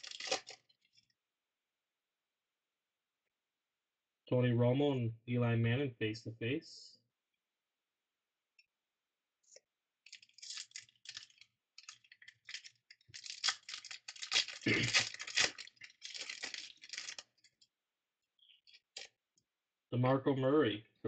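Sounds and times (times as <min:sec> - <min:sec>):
cards rustling and flicking: 0:00.0 - 0:00.6, 0:10.1 - 0:17.4.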